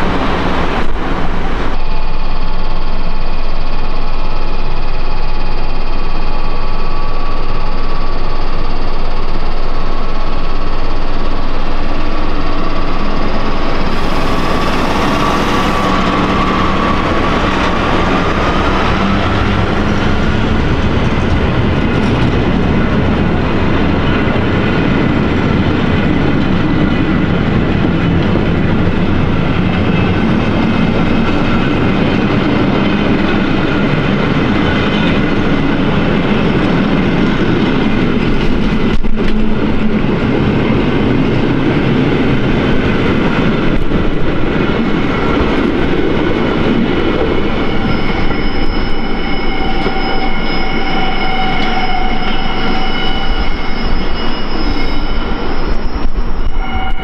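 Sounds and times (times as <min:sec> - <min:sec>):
train wheels rumbling on rail: 0:00.0 - 0:57.0
high wheel squeal: 0:05.0 - 0:22.2, 0:45.3 - 0:57.0.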